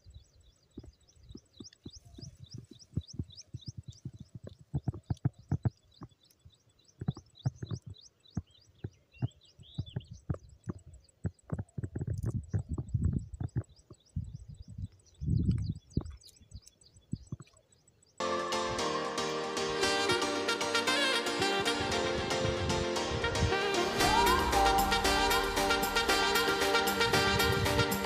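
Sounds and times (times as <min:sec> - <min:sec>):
wind buffeting microphone: 0:00.0 - 0:17.4, 0:21.8 - 0:26.4, 0:27.0 - 0:28.0
birds chirping: 0:00.0 - 0:18.8.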